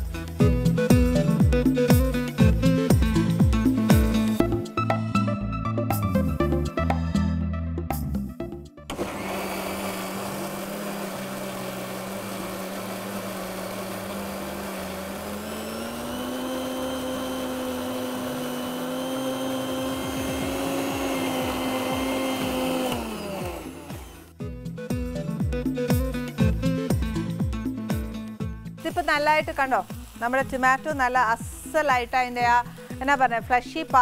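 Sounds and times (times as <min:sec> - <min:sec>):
mixer grinder motor: 0:08.9 - 0:24.5, 0:28.4 - 0:31.8.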